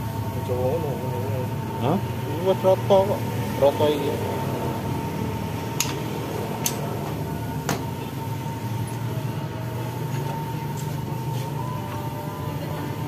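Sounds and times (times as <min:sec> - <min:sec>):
steady low hum: 0:00.0 - 0:13.0
sharp clicks of tools on metal: 0:05.8 - 0:06.0, 0:06.6 - 0:06.9.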